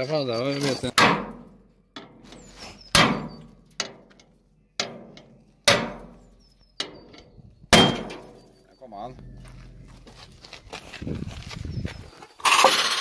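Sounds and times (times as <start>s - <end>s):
hammer striking metal: 5.7s - 6.2s, 7.7s - 8.3s.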